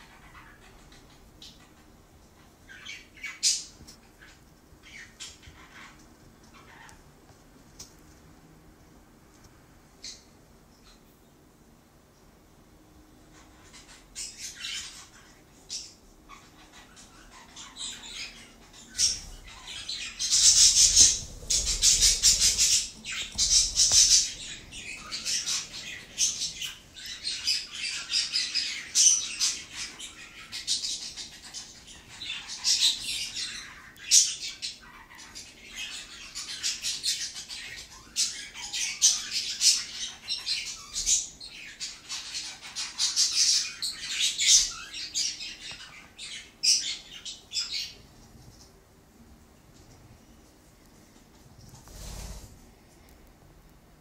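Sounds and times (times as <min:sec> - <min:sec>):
budgerigars chattering and squawking: 0:13.4 - 0:48.0.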